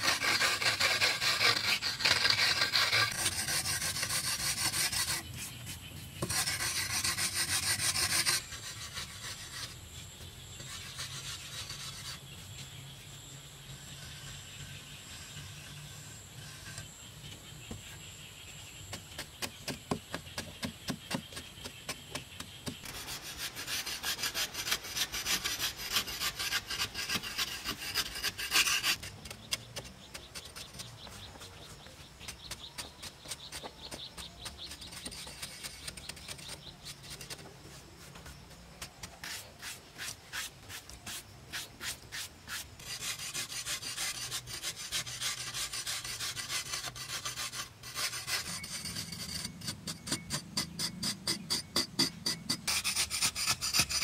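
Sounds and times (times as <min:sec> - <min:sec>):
metal blades scraping clay: 0:00.0 - 0:05.6, 0:38.8 - 0:54.0.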